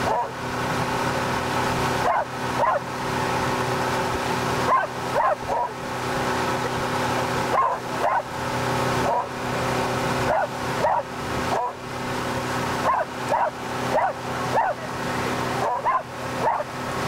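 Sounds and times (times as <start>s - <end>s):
boat engine drone: 0.0s - 17.0s
rush of boat wake: 0.0s - 17.0s
dog whining and yipping: 7.6s - 8.2s, 15.6s - 16.6s.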